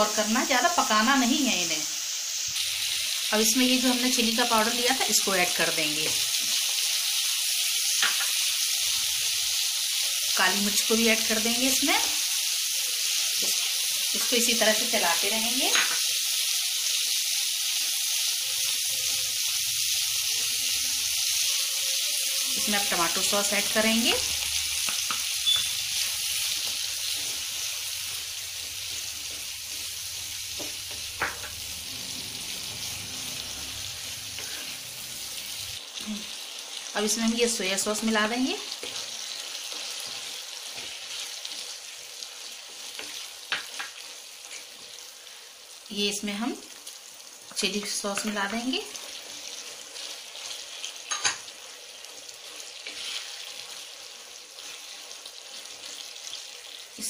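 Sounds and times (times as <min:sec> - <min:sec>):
vegetables sizzling in oil: 0:00.0 - 0:57.0
spatula stirring in wok: 0:22.3 - 0:35.6, 0:38.7 - 0:45.0, 0:47.5 - 0:56.8.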